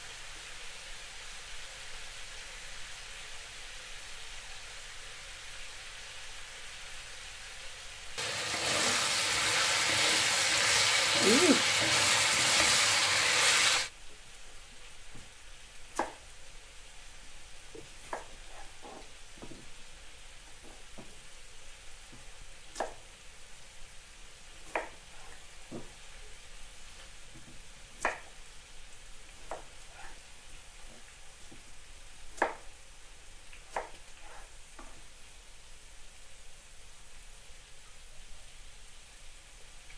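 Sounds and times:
meat sizzling in a pan: 0.0s - 14.0s.

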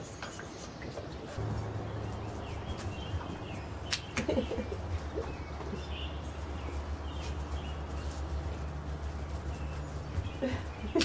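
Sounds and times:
steady low hum: 1.4s - 11.0s
sharp clicks: 3.8s - 4.4s.

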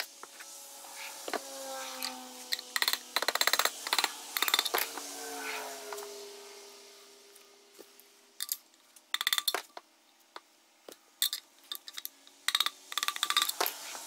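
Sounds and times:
tools clinking and rattling: 2.0s - 5.0s, 8.4s - 9.8s, 10.9s - 13.9s.

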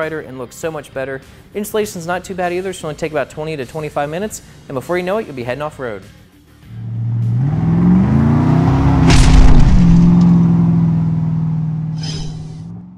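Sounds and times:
car engine revving: 6.6s - 12.9s
loud hit: 9.0s - 10.5s.

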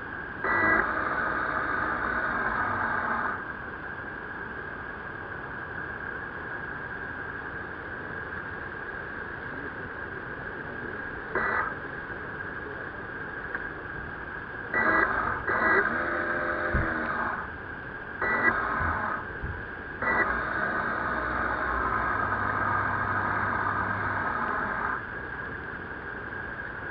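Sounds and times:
constant high tone: 0.0s - 5.0s, 8.9s - 26.9s
motor whirring: 0.4s - 3.4s, 11.4s - 11.8s, 14.8s - 17.6s, 18.2s - 25.1s.

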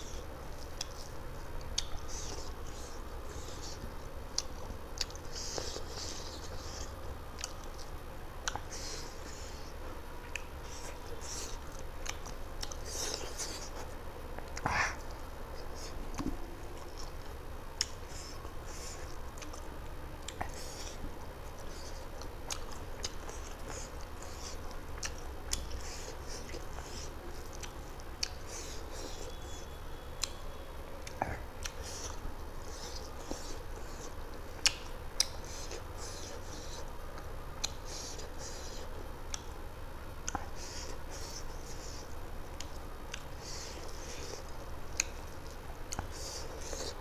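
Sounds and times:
man chewing: 0.0s - 30.4s, 31.0s - 39.6s, 40.2s - 47.0s
mouth clicks and smacks: 31.0s - 39.6s, 40.2s - 47.0s.

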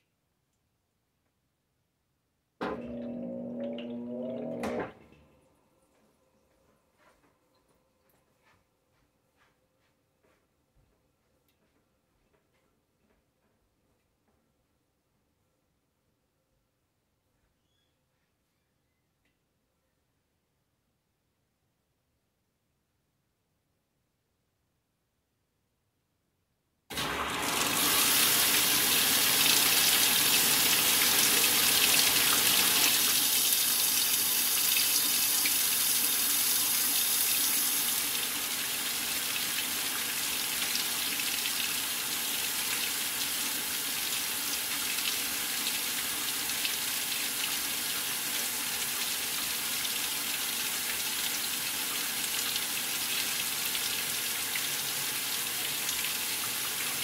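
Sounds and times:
water rushing into washer tub: 2.6s - 5.3s, 26.9s - 57.0s.

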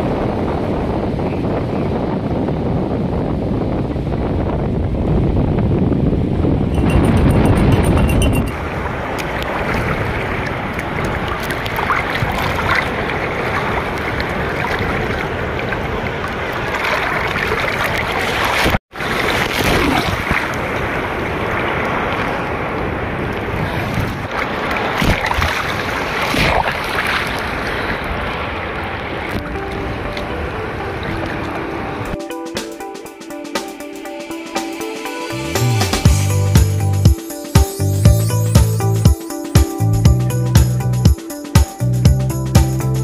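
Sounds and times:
waves breaking on beach: 8.3s - 36.0s.

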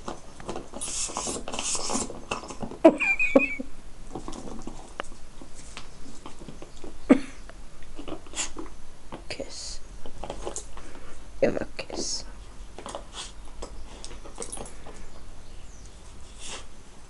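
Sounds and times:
dog snuffles: 8.0s - 8.6s, 13.0s - 13.4s, 16.2s - 16.7s.

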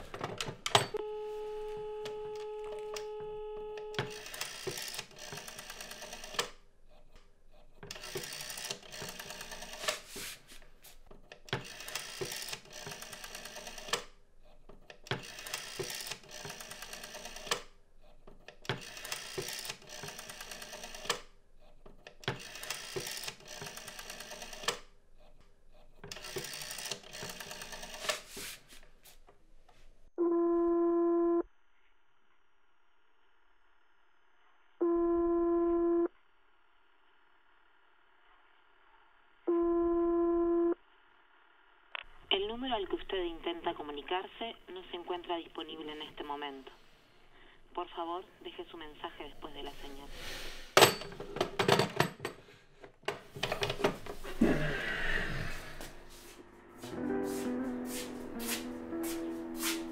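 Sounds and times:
telephone ringing tone: 0.8s - 6.4s.

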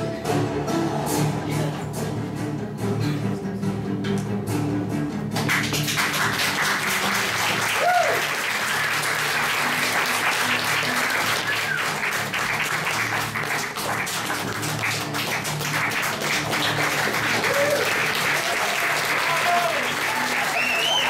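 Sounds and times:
recorded music: 0.0s - 21.0s
audience applauding: 5.4s - 21.0s
person cheering: 7.6s - 8.4s, 17.3s - 21.0s.

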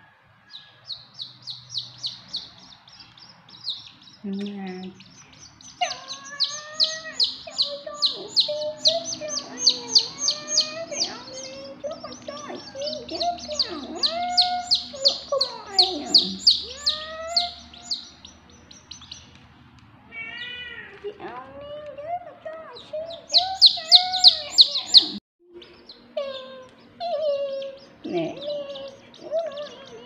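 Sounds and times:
lower curving calls: 0.5s - 19.4s, 23.1s - 27.0s
chicks peeping: 0.5s - 19.5s, 22.5s - 30.0s.

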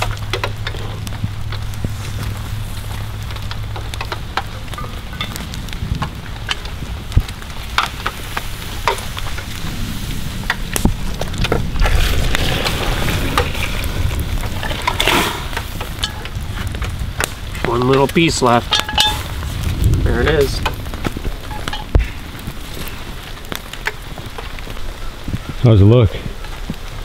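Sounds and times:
low steady rumble: 0.0s - 23.8s
broth splashing and pouring: 8.2s - 17.1s
metal pot clinks and knocks: 18.7s - 19.3s.

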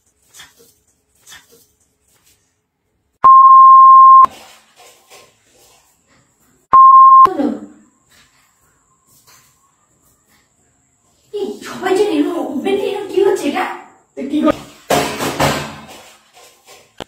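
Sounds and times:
censor bleep tone: 3.2s - 4.3s, 6.8s - 7.3s.

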